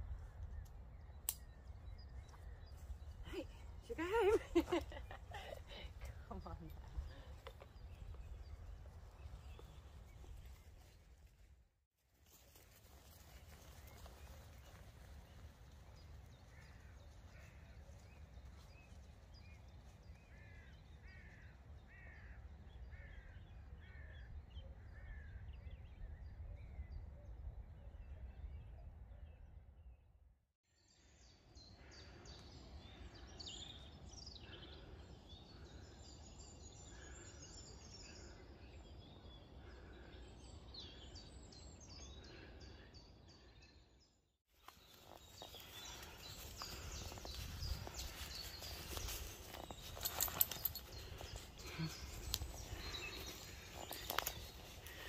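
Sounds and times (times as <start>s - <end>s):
small birds chirping: 0.0s - 10.9s, 31.0s - 55.0s.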